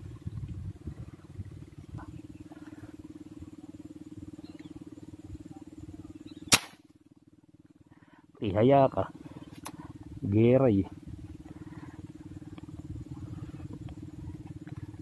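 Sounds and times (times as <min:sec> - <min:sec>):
steady low hum: 0:00.0 - 0:15.0
airgun shot: 0:06.5 - 0:06.9.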